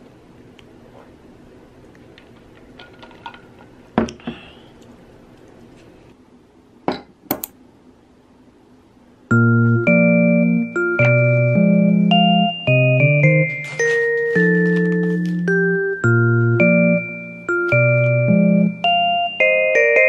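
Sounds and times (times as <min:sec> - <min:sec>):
light piano music: 0:09.3 - 0:20.0.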